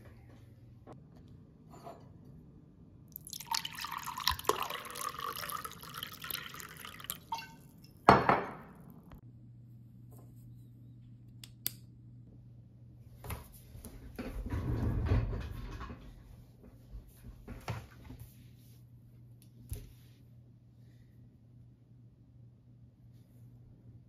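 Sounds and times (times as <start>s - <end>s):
water poured into glass: 3.1s - 7.7s.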